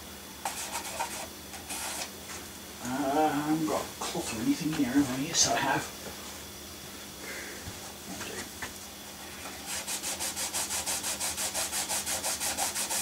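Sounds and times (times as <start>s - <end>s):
hand rubbing back and forth: 9.6s - 13.0s.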